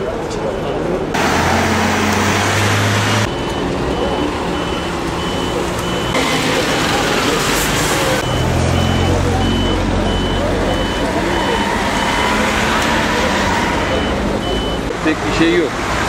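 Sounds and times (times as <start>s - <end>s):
road noise: 0.0s - 16.0s
short high warning beeps: 3.3s - 6.2s, 8.2s - 12.5s.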